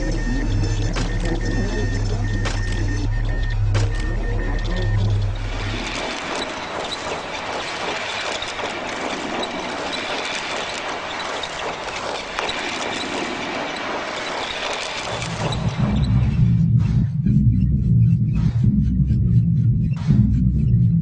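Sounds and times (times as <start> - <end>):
mechanical clicks and rattles: 2.2 - 16.0.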